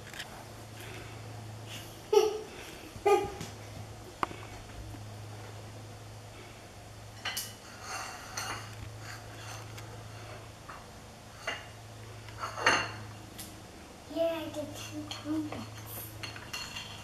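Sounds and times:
dishes clinking: 7.2s - 9.4s, 12.4s - 13.0s, 15.1s - 17.0s.

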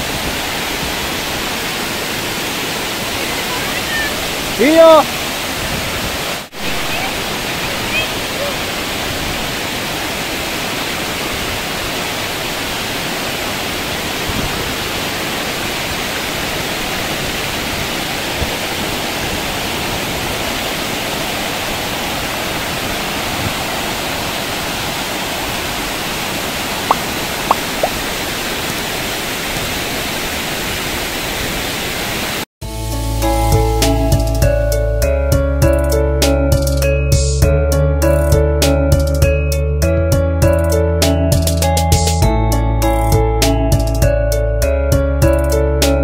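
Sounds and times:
waterfall rushing: 0.0s - 33.0s
music: 32.6s - 46.0s.

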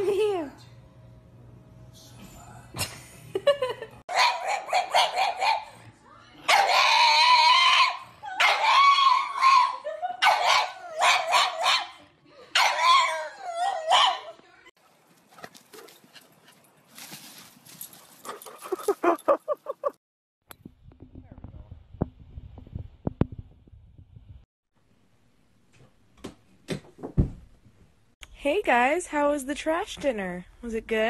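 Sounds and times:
dog yipping: 4.1s - 5.7s, 6.5s - 12.0s, 12.6s - 14.4s
dog barking: 4.1s - 5.8s, 6.5s - 12.0s, 12.6s - 14.4s
dog howling: 6.5s - 11.9s, 12.6s - 14.4s.

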